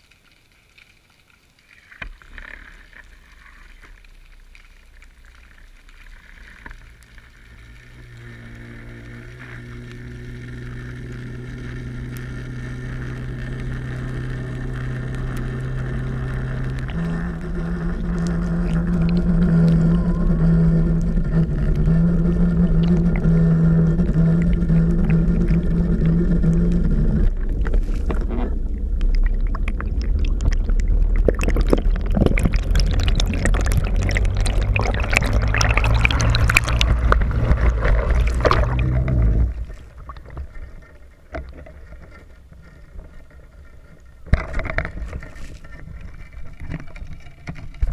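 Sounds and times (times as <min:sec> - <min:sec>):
underwater low hum: 0:00.0 - 0:47.9
water splashing: 0:00.0 - 0:47.9
water rushing past camera: 0:01.6 - 0:47.9.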